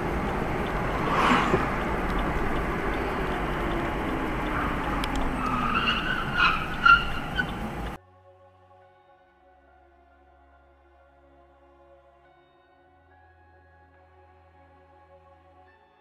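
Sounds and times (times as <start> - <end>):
car road and engine noise: 0.0 - 8.0
tires squealing: 0.0 - 8.0.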